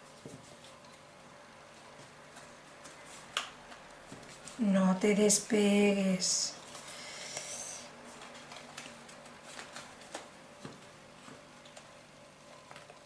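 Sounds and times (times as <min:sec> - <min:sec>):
cardstock ticks and rustles: 0:08.1 - 0:13.0.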